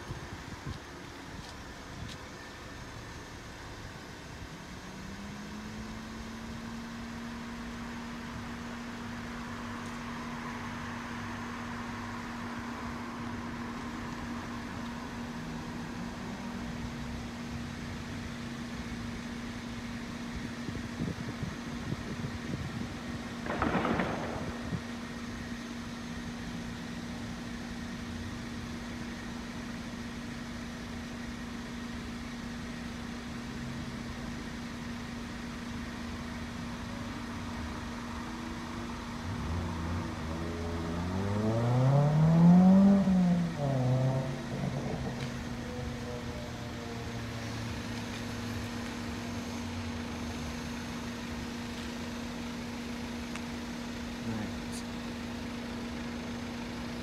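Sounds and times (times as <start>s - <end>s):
vehicle engine accelerating past: 39.2s - 48.6s.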